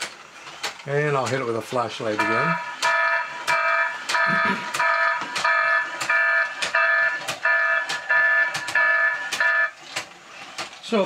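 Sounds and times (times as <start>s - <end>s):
repeating alarm beep: 2.2s - 9.8s.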